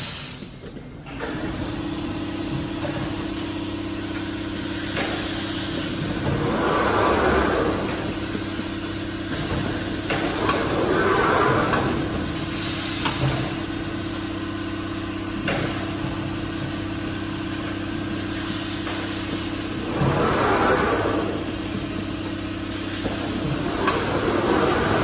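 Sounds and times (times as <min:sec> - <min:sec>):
machine electrical hum: 0:00.0 - 0:25.0.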